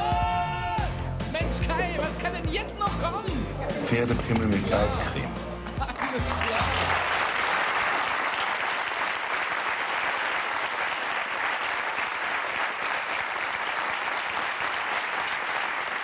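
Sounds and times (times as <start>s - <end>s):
audience applauding: 5.6s - 16.0s.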